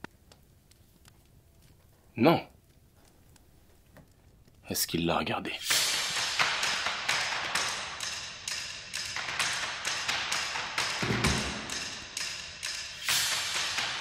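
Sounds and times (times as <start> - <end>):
ticking beat of sharp clicks: 5.7 - 14.0.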